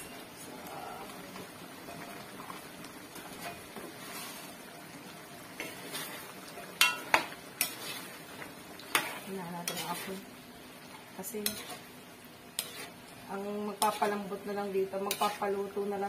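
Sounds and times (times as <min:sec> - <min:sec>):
stew simmering: 0:00.0 - 0:16.0
metal spatula scraping a wok: 0:03.4 - 0:04.6, 0:05.6 - 0:08.2, 0:08.9 - 0:10.2, 0:11.4 - 0:11.9, 0:12.5 - 0:13.0
spatula clanking against pan: 0:06.8 - 0:07.8.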